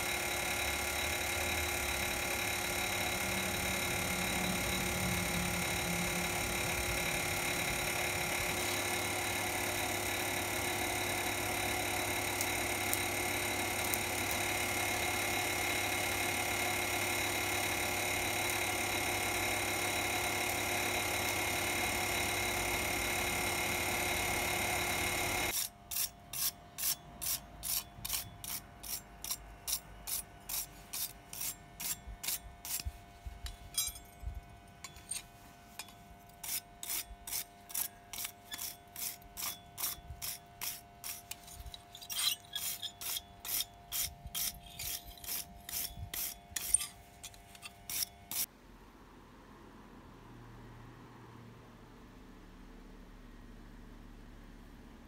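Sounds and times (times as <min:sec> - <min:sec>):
wire brush scrubbing metal: 0:25.3 - 0:34.1, 0:34.8 - 0:48.5.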